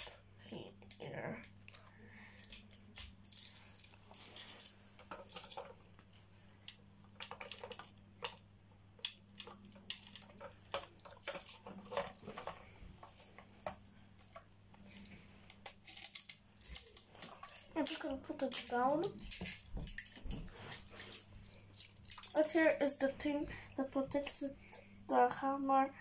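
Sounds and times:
plastic pieces clicking: 0.0 - 5.7, 6.6 - 8.4, 9.0 - 20.4, 21.1 - 22.7.

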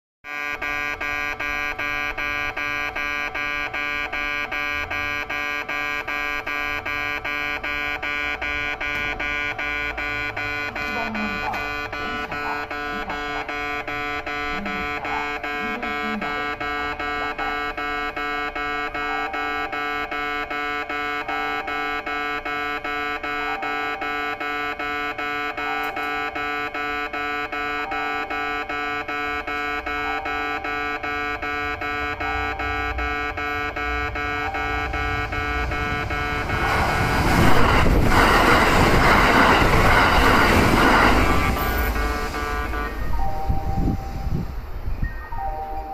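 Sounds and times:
level crossing bell ringing: 7.0 - 37.9, 39.3 - 45.9
train passing at speed: 32.6 - 45.9.

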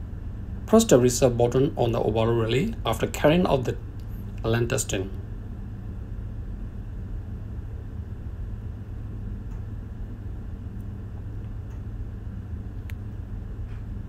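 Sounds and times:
engine room machinery drone: 0.0 - 14.0
faint clicks: 9.4 - 9.7.

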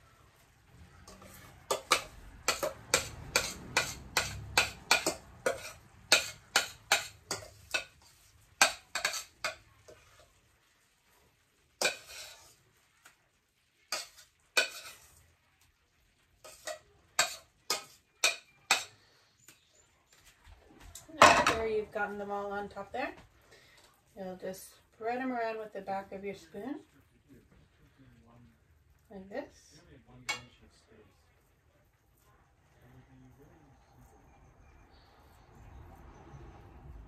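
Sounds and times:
metal spoon clinking on pot: 1.1 - 10.2, 11.8 - 12.5, 13.9 - 15.1, 16.4 - 19.1, 30.3 - 30.6.

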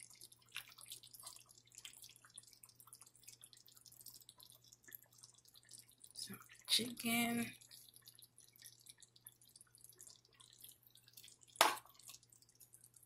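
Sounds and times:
spoon moving through stew: 0.0 - 6.6, 7.6 - 13.0
wet ticks and pops from stew: 11.5 - 12.6.

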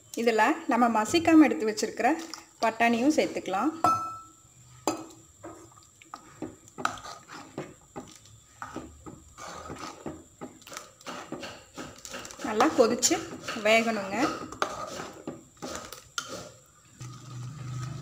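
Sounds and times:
ladle stirring thick gravy: 5.4 - 18.0.

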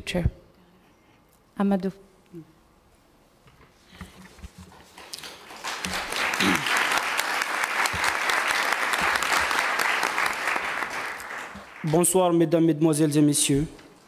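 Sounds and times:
audience applauding: 5.0 - 12.2.

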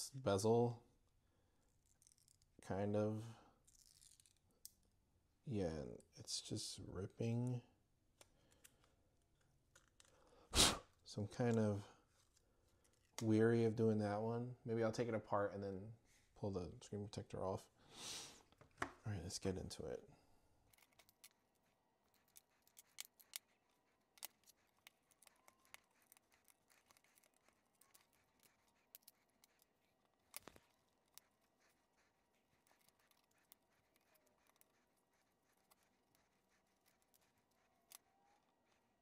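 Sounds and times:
small plastic parts clicking: 3.6 - 4.8, 20.7 - 31.5.

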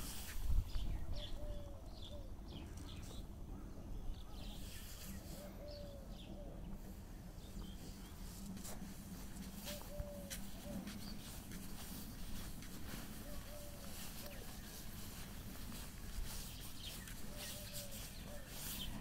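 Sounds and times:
small birds chirping: 0.0 - 19.0
dove cooing: 0.9 - 3.0, 5.1 - 7.0, 9.4 - 19.0.

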